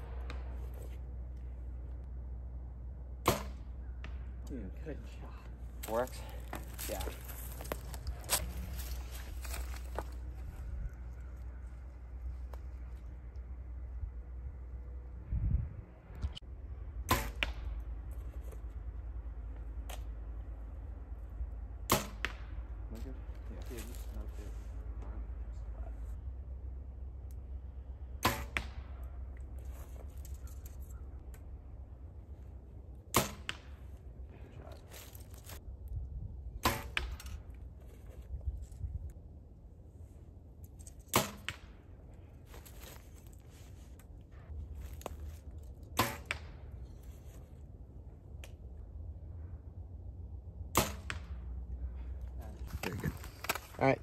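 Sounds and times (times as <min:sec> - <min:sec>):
arrow hitting target: 0:03.2 - 0:04.4, 0:17.0 - 0:17.9, 0:21.8 - 0:22.6, 0:28.1 - 0:29.1, 0:33.1 - 0:33.8, 0:36.6 - 0:37.4, 0:41.1 - 0:41.8, 0:45.8 - 0:46.8, 0:50.7 - 0:51.4
arrow knock: 0:03.2 - 0:04.4, 0:17.1 - 0:17.8, 0:28.2 - 0:28.9, 0:36.6 - 0:37.3, 0:46.0 - 0:46.6.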